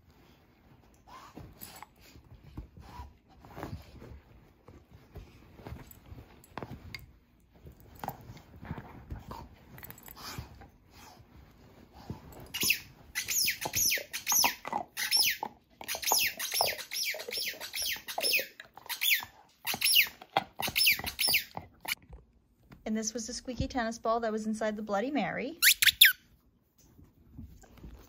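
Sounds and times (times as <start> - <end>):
dog chewing toy: 0.9 - 11.2, 11.8 - 22.2
toy squeaker squeaking: 12.6 - 21.6, 25.6 - 26.2.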